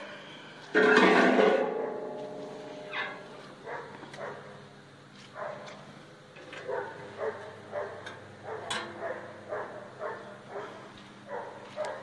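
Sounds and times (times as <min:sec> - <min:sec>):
dog barking: 0:03.6 - 0:04.5, 0:05.4 - 0:05.7, 0:06.6 - 0:12.0.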